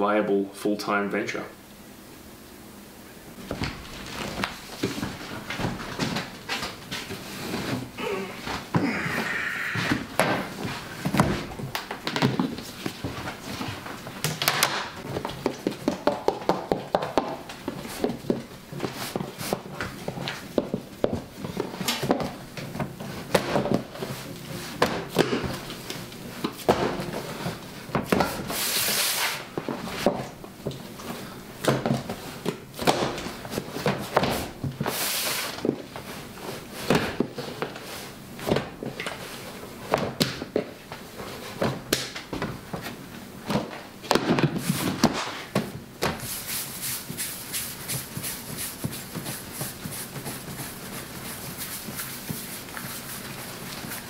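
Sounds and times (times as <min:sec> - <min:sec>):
dough swishing: 0:46.2 - 0:54.0.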